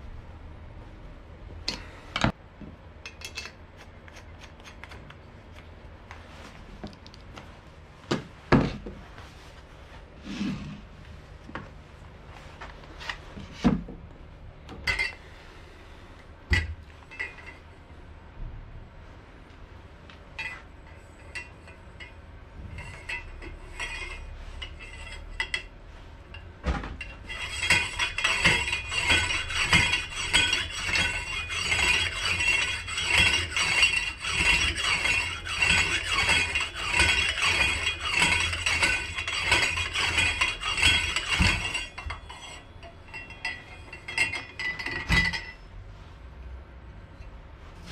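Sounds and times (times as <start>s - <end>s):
pump drill clinking and rattling: 27.0s - 45.6s.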